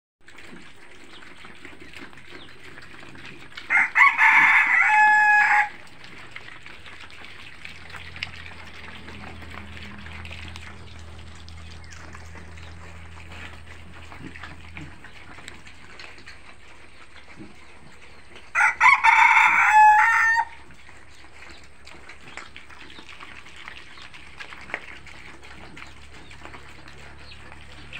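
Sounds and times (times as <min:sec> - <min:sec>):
piglets eating grain on concrete: 0:00.2 - 0:27.9
rooster crowing: 0:03.7 - 0:05.8, 0:18.5 - 0:20.6.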